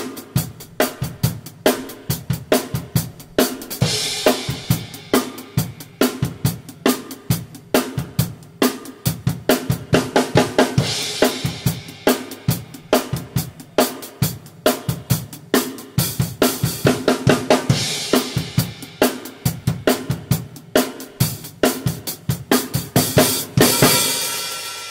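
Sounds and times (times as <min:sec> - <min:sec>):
drum kit groove: 0:00.0 - 0:24.9
cymbal crash: 0:03.1 - 0:05.8.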